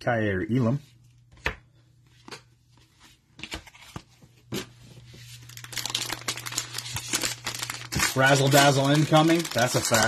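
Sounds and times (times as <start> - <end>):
foil pack rustling: 5.3 - 10.0.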